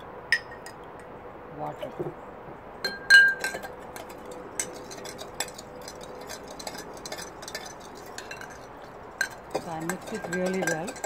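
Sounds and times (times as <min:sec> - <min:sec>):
metal spoon clinking in ceramic cup: 0:02.8 - 0:11.0.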